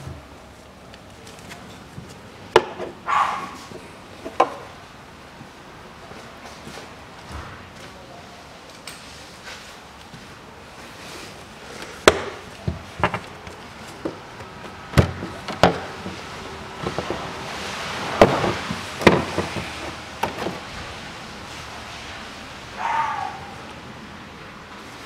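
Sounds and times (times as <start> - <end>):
plastic cover knocking and clunking: 14.9 - 16.2, 18.2 - 20.6.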